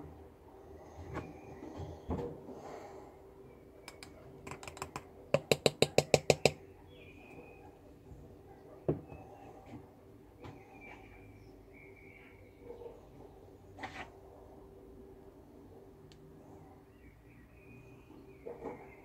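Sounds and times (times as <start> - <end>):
wire tapping on glass jar: 3.9 - 6.6.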